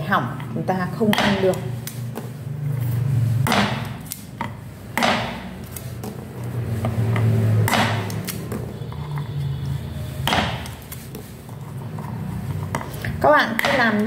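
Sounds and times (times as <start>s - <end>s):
cleaver chopping on wooden board: 1.1s - 1.6s, 3.4s - 4.2s, 4.9s - 5.6s, 7.6s - 8.4s, 10.2s - 10.8s.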